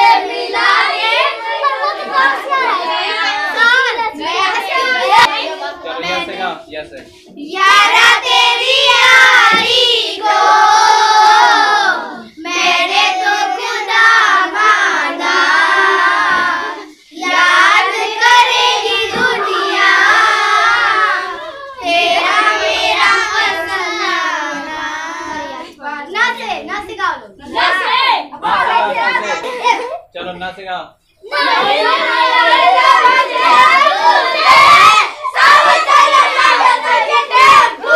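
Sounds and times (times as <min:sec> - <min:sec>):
children singing in chorus: 0:00.0 - 0:05.9, 0:07.4 - 0:25.8, 0:31.2 - 0:37.9.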